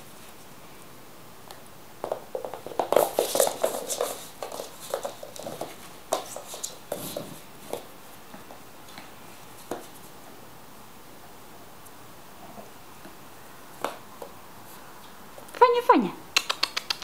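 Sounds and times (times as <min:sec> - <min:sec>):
puppy scampering on wooden floor: 0:02.0 - 0:10.1.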